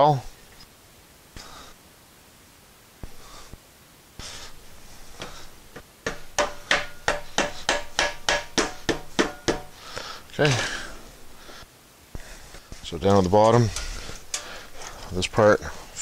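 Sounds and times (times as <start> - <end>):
rubber mallet tapping metal: 6.0 - 9.8.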